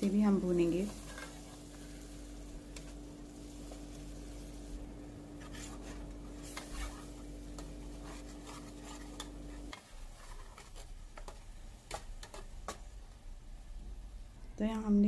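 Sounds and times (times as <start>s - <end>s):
steady low hum: 0.0s - 9.8s
paste frying in oil: 0.0s - 12.8s
metal spatula scraping pot: 0.8s - 1.7s, 5.3s - 12.5s.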